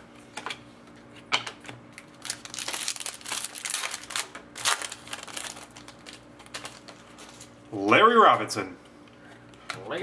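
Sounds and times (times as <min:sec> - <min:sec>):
foil wrapper crinkling and tearing: 0:02.0 - 0:07.6.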